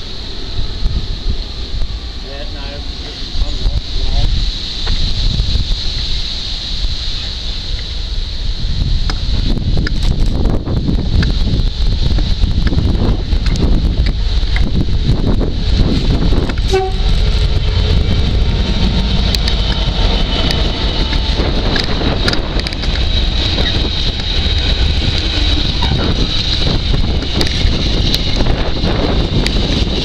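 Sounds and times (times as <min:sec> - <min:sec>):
diesel locomotive passing: 0:00.0 - 0:30.0
train wagons rumbling: 0:00.0 - 0:30.0
high-pitched wheel squeal: 0:23.4 - 0:26.7.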